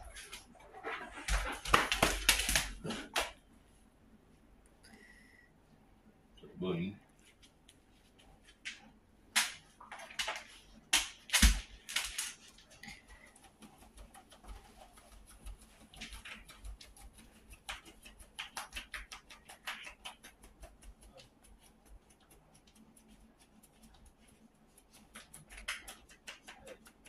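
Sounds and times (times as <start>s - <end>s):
dog scratching itself: 0.0s - 3.4s, 9.8s - 27.0s.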